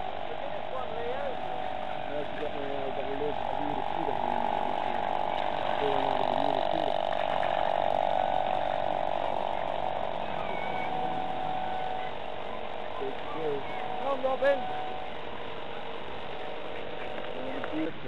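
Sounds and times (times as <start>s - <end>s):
model boat motor buzzing: 0.0s - 18.0s.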